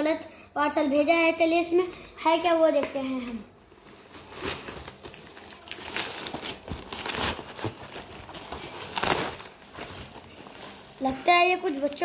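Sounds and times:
wrapping rustling and crinkling: 3.2 - 12.0
cardboard tearing: 4.1 - 10.9.

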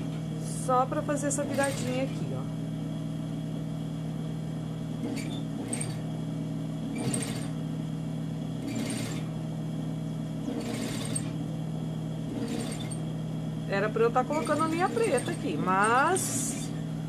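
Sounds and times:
motor hum: 0.0 - 17.0
sewing machine stitching: 1.4 - 2.3, 5.0 - 6.0, 6.9 - 7.6, 8.6 - 9.3, 10.4 - 11.4, 12.3 - 13.0, 14.2 - 16.8.

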